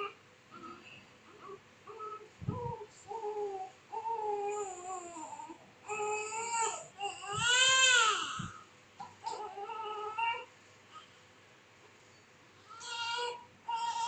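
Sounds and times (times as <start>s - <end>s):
newborn baby crying: 1.9s - 10.5s, 12.6s - 14.0s.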